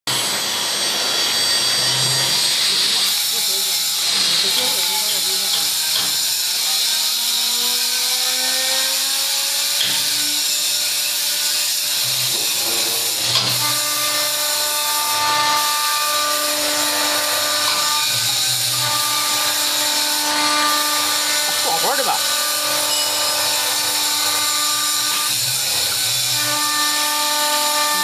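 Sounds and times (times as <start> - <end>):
lathe cutter cutting wood: 0.1 - 28.0
motor tones: 11.3 - 28.0.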